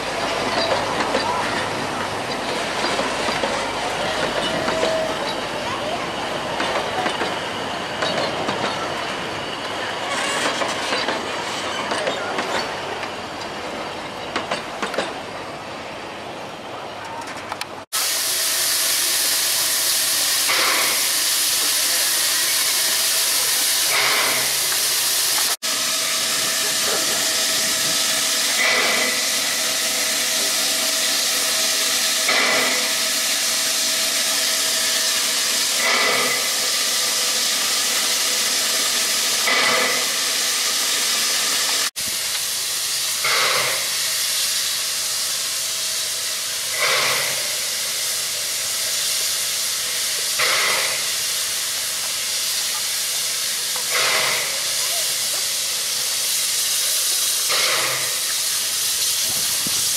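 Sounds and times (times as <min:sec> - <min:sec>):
steam locomotive hissing: 0:00.0 - 0:16.6, 0:17.8 - 0:59.9
steam surge: 0:17.9 - 0:59.9.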